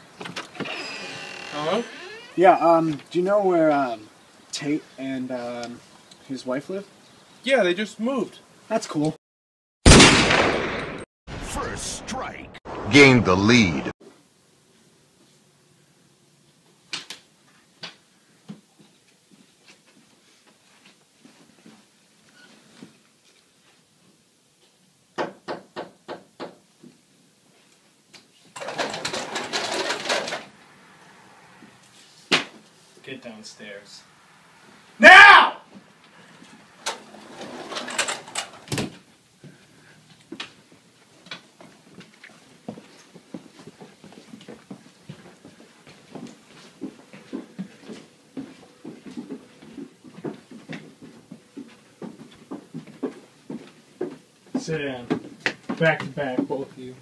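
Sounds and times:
sliding glass door rolling open: 0.2s - 2.5s, 28.6s - 30.5s, 36.8s - 38.8s
footsteps walking briskly: 41.6s - 55.8s.

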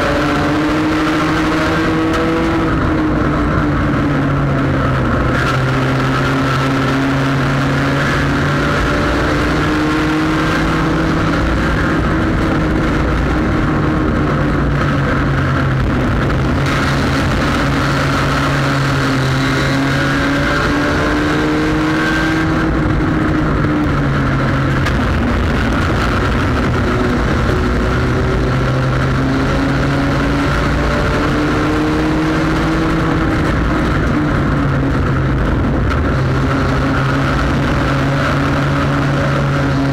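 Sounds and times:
race car engine running hard: 0.0s - 39.9s
road and wind noise: 0.0s - 39.9s.

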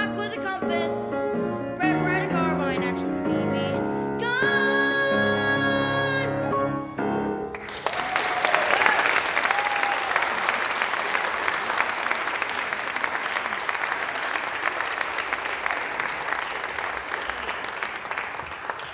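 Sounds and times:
audience applauding: 7.5s - 18.9s.

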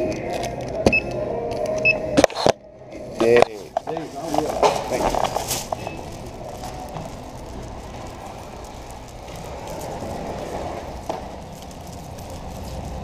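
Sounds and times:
store ambience rumble: 0.0s - 13.0s
footsteps: 3.0s - 13.0s
clothing rustling: 3.2s - 13.0s.

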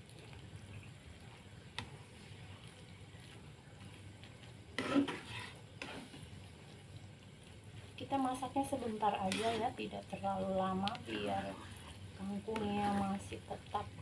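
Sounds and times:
faint sizzle: 0.0s - 14.0s
spatula stirring in frying pan: 0.0s - 14.0s
scrape and clatter: 4.8s - 6.3s, 9.2s - 9.8s.

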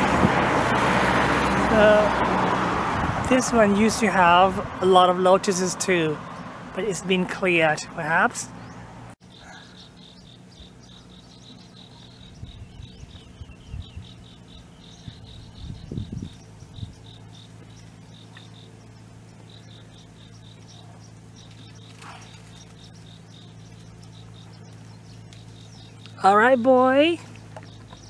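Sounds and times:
steady low hum: 2.9s - 28.0s
insects chirping: 8.6s - 28.0s.

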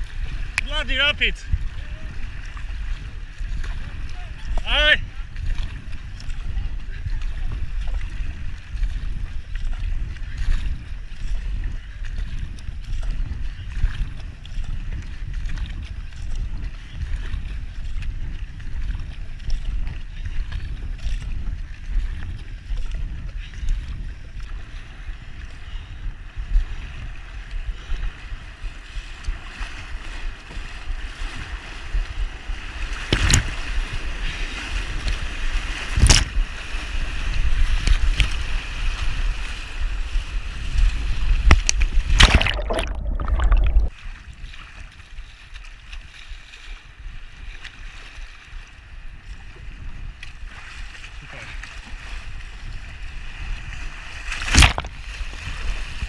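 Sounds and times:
water rushing around kayak: 0.0s - 56.0s
wind rumbling on microphone: 0.0s - 56.0s
sharp splashing hits: 42.1s - 43.9s, 54.4s - 55.1s.

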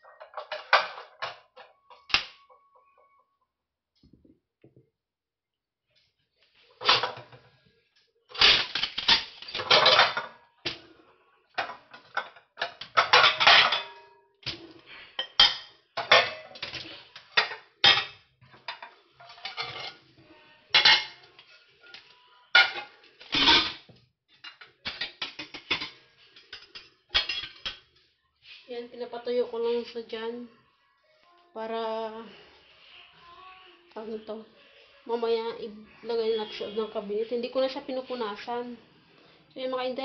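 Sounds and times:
glass dishes clinking: 11.6s - 14.2s, 15.2s - 16.5s, 20.8s - 21.2s.

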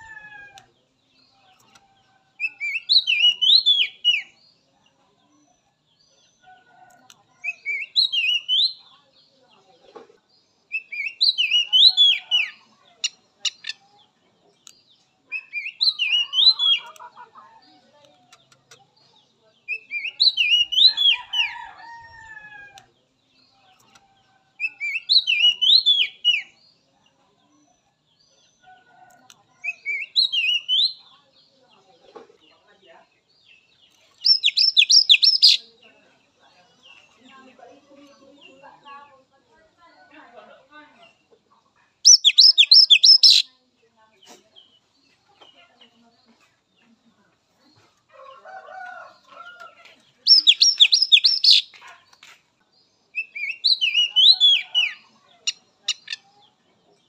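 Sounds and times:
bird whistled song phrase: 42.1s - 43.5s, 50.3s - 51.7s, 53.2s - 55.0s.

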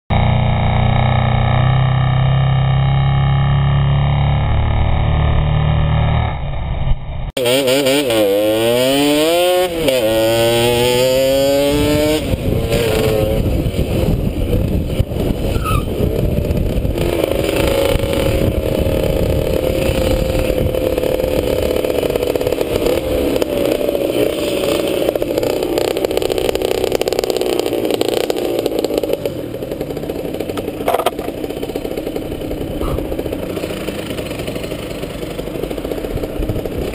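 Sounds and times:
moped engine revving: 0.1s - 36.9s
wind on microphone: 11.3s - 23.7s.

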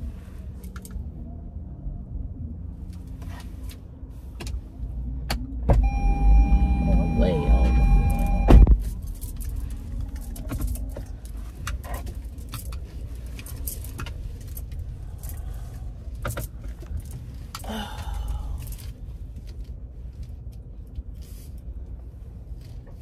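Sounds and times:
low rumble of car: 0.0s - 23.0s.

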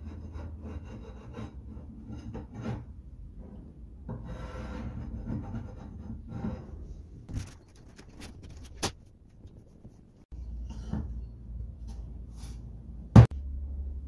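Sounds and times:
metal file rasping: 0.0s - 2.9s.

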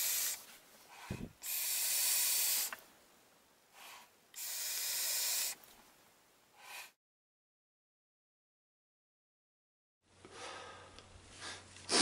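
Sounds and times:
vape exhale airy hiss: 0.0s - 2.8s, 3.8s - 5.6s, 6.6s - 7.0s.

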